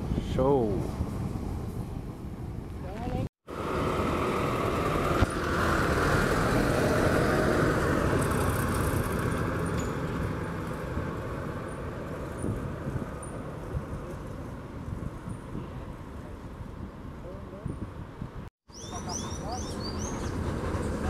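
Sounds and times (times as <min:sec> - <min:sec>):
minibus driving over cobblestones: 0:03.1 - 0:15.6, 0:19.0 - 0:21.0.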